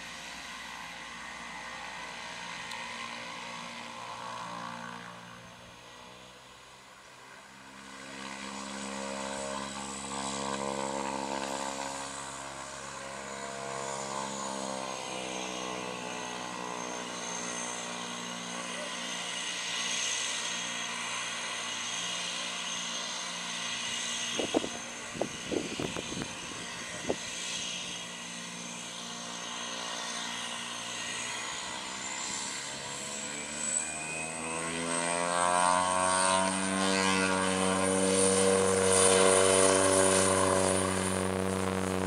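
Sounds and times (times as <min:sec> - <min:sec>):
propeller drone: 0:00.0 - 0:42.0
turboprop engine whine: 0:00.0 - 0:42.0.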